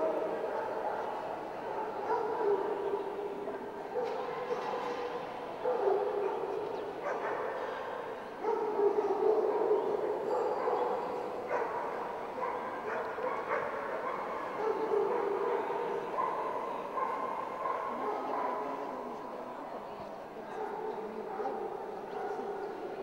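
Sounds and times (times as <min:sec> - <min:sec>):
dogs barking and yipping: 0:08.4 - 0:18.6.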